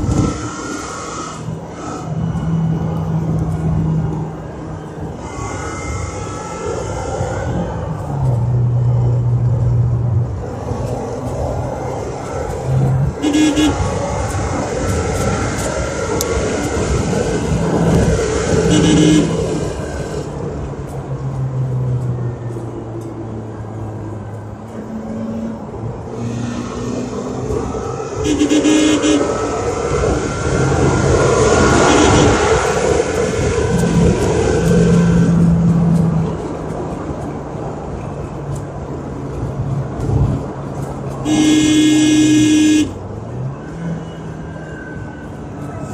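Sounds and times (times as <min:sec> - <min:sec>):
car engine and road noise: 0:00.0 - 0:45.9
car horn toots: 0:13.2 - 0:13.9, 0:18.7 - 0:19.4, 0:28.2 - 0:29.4, 0:31.8 - 0:32.4, 0:41.2 - 0:43.0.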